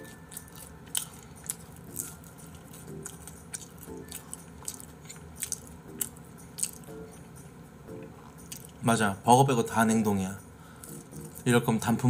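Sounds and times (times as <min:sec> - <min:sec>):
chewing french fries: 0:00.0 - 0:07.4, 0:08.0 - 0:08.8, 0:10.8 - 0:11.5.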